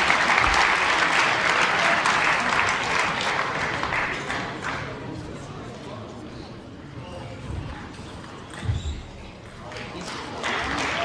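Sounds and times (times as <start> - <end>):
audience applauding: 0.0 - 4.9, 9.8 - 11.0.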